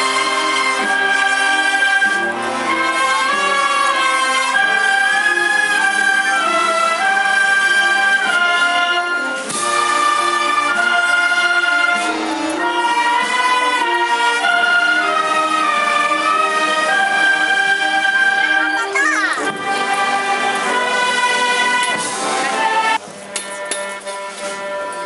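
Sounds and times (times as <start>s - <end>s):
band playing slow march: 0.0s - 25.0s
flutes: 0.0s - 25.0s.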